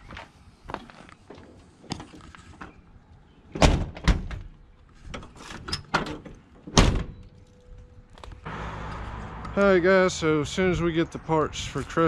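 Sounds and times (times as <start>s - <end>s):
heavy steel door clunks: 3.6s - 4.5s, 5.9s - 7.2s.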